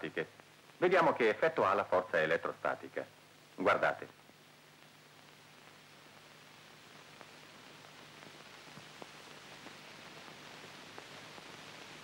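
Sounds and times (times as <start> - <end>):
film soundtrack hiss: 0.0 - 12.0
faint clicks and crackles: 2.4 - 12.0.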